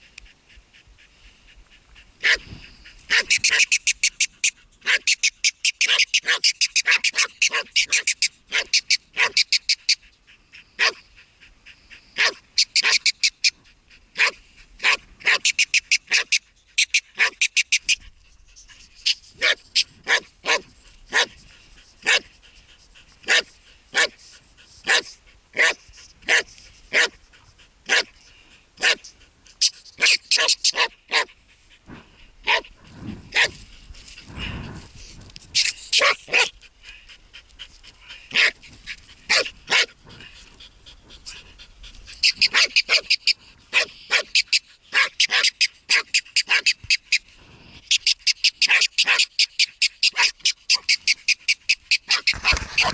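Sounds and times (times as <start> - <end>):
dog barking: 2.2 - 2.4, 3.1 - 3.7, 4.8 - 5.1, 5.8 - 9.4, 10.8 - 11.0, 12.2 - 13.0, 14.2 - 15.5, 16.1 - 16.4, 17.2 - 17.4, 19.4 - 21.4, 22.0 - 22.3, 23.2 - 24.2, 24.9 - 27.2, 27.9 - 28.1, 28.8 - 29.0, 30.0 - 31.3, 32.4 - 32.7, 33.3 - 33.6, 36.0 - 36.5, 38.3 - 38.6, 39.3 - 40.0, 42.5 - 46.8, 48.6 - 49.3, 50.1 - 50.9, 52.1 - 52.9.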